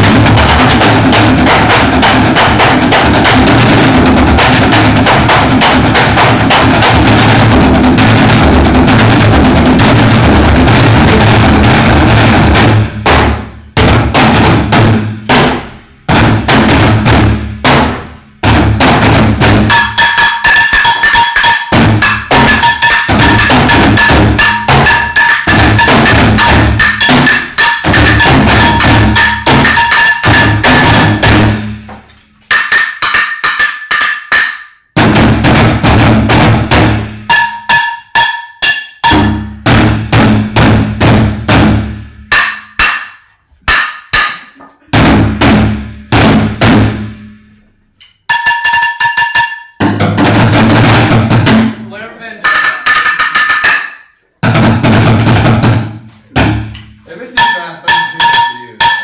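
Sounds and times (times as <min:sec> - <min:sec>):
drumming on plastic barrels: 0:00.0 - 0:47.4, 0:48.0 - 0:59.0
high ringing tone: 0:48.3 - 0:49.8, 0:57.4 - 0:59.0.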